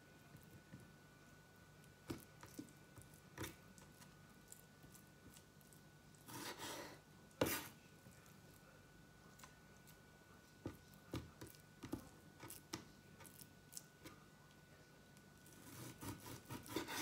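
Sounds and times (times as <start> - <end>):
knife scraping: 6.2 - 7.8, 15.4 - 17.0.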